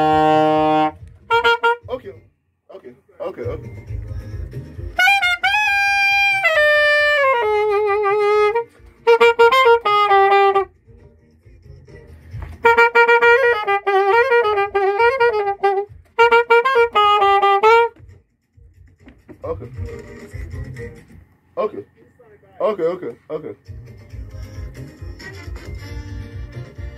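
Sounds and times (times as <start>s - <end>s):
solo alto saxophone: 0.0s - 2.0s, 4.9s - 10.8s, 12.5s - 18.0s.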